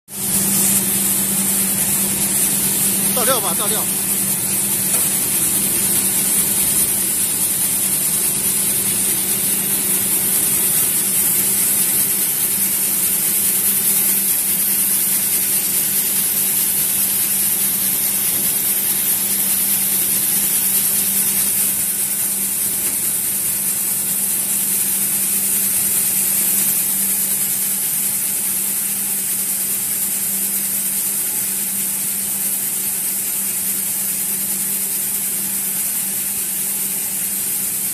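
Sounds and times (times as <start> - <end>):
steady low hum: 0.1 - 28.4
hiss of kernels shaking and sliding: 0.1 - 37.9.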